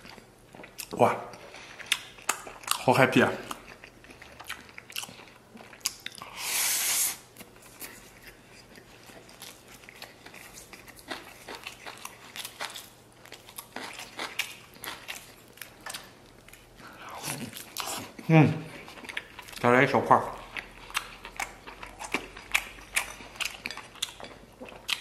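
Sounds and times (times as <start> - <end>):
loud breathy hiss: 6.3 - 7.2.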